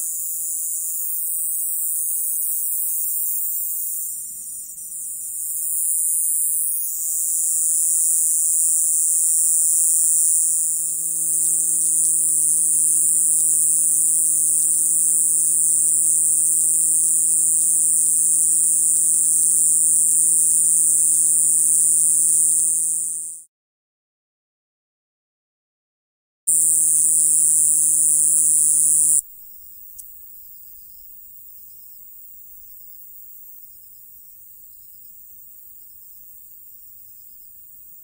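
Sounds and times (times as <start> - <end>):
katydid buzzing: 0.0 - 23.4, 26.5 - 29.2.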